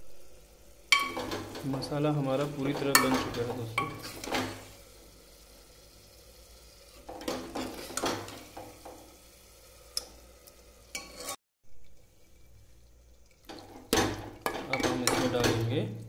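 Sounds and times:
faint sizzle: 0:00.0 - 0:16.0
metal ladle scraping pot: 0:00.9 - 0:04.7, 0:06.9 - 0:09.0, 0:10.9 - 0:11.4.

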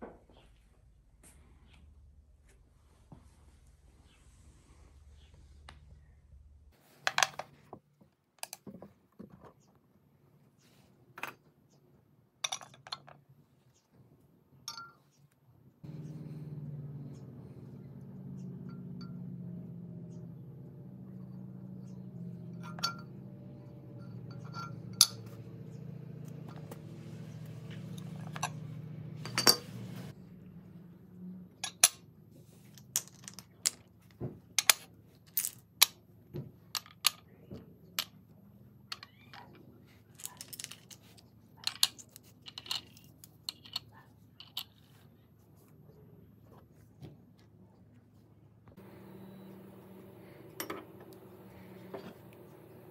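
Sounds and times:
low steady drone: 0:15.8 - 0:31.4
metal ingots clinking: 0:21.8 - 0:30.0.

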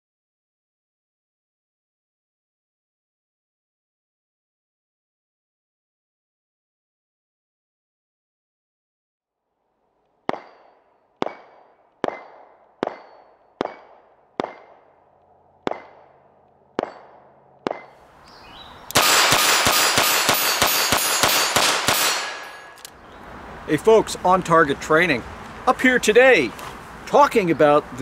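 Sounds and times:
bullets ringing on steel plates: 0:10.3 - 0:14.6, 0:16.8 - 0:18.0, 0:19.0 - 0:22.8
revolver gunshots: 0:10.3 - 0:15.0, 0:15.6 - 0:18.0, 0:18.9 - 0:22.9.

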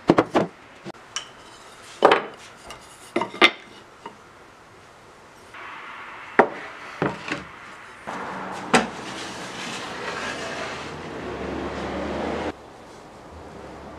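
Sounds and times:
steady background hiss: 0:00.0 - 0:11.1.

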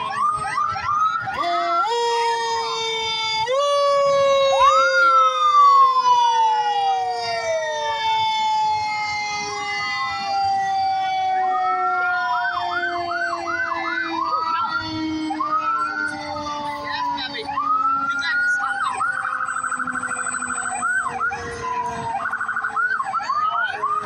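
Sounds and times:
fire engine sirens wailing: 0:00.0 - 0:24.0
siren yelp: 0:00.0 - 0:24.0.

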